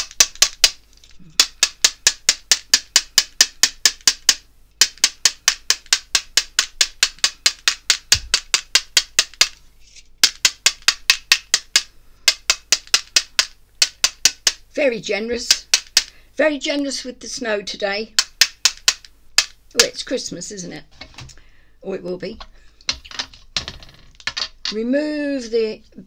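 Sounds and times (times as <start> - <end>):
pen tapping plastic ruler: 0.0 - 0.8, 1.4 - 9.6, 10.2 - 14.6, 15.4 - 16.1, 18.2 - 19.6.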